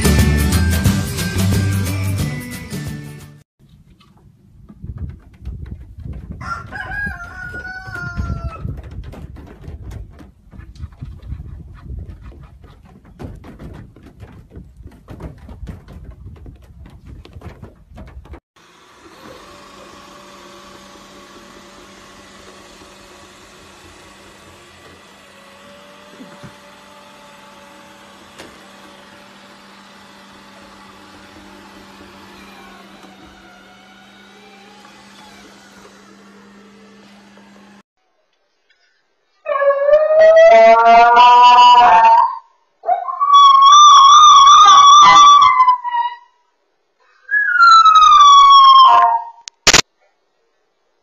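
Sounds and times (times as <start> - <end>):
knocks and scuffling: 3.6 - 18.4
robot vacuum cleaner running: 18.6 - 37.8.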